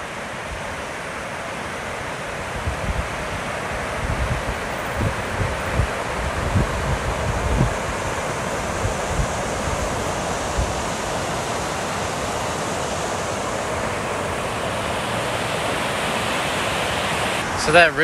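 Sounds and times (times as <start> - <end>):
river rushing over weir: 0.0 - 18.0
wind bumps on microphone: 2.6 - 3.4, 4.0 - 11.2.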